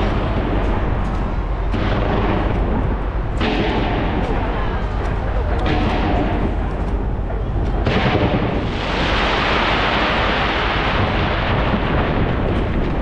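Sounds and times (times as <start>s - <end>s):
fireworks bursting and crackling: 7.6s - 13.0s.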